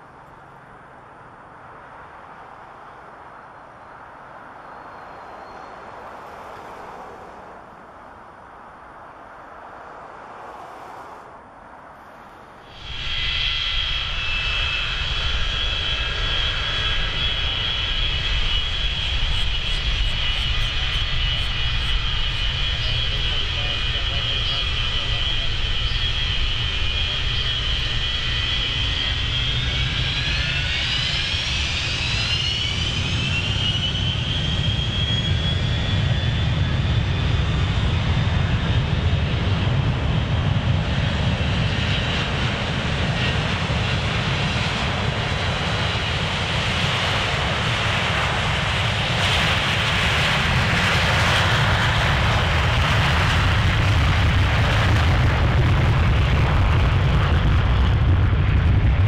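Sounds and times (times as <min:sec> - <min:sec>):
crackling jet roar: 0:01.2 - 0:59.0
jet engines spooling up: 0:12.1 - 0:59.0.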